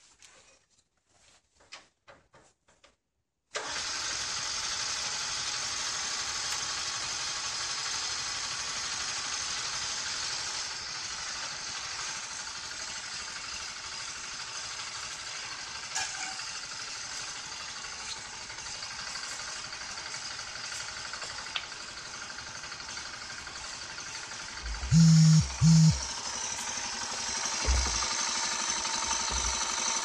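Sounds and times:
motorcycle engine idling: 16.6s - 30.0s.

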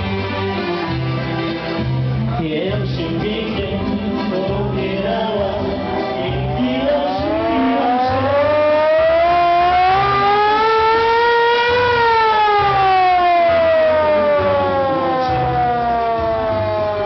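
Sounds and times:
hand-cranked siren wailing: 6.2s - 17.0s.

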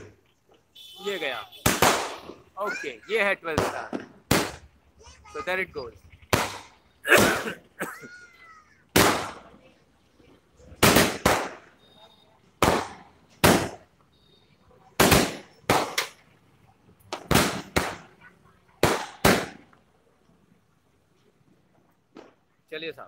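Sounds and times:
firework bangs: 1.1s - 2.6s, 3.4s - 4.8s, 6.1s - 7.6s, 8.5s - 9.5s, 10.7s - 11.8s, 12.6s - 13.9s, 14.9s - 16.2s, 17.1s - 19.7s.

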